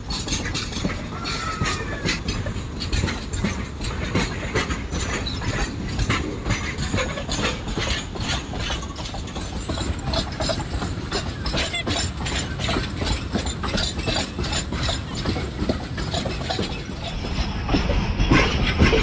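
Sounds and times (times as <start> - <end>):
train wheels rumbling: 0.0 - 19.0
wheels clacking over rails: 0.0 - 19.0.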